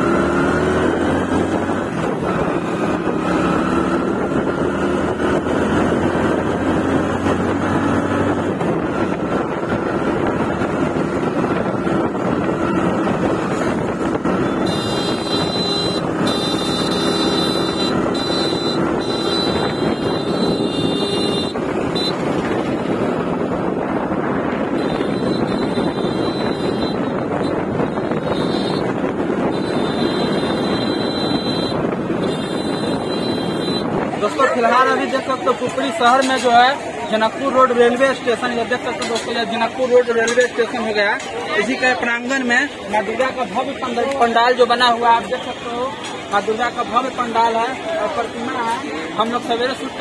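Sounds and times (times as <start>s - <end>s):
vehicle engine: 0.0s - 50.0s
wind buffeting microphone: 0.4s - 18.2s, 18.8s - 37.5s.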